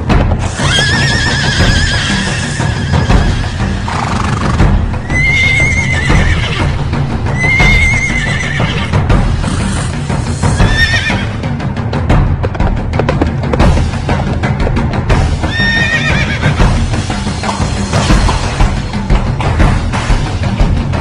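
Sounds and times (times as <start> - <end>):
music with clip-clop beat: 0.0 - 21.0
horse whinnies: 0.5 - 9.8, 10.5 - 11.4, 15.4 - 16.7.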